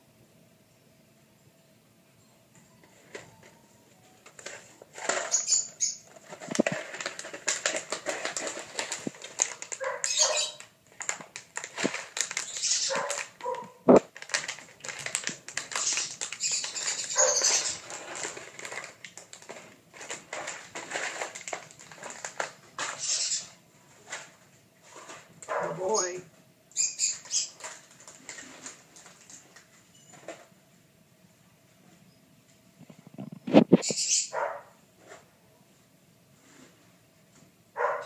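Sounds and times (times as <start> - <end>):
claws and toys clattering on tile: 4.2 - 25.6, 27.0 - 30.5
puppies yipping and barking: 9.8 - 10.7, 12.5 - 13.8, 15.8 - 17.8.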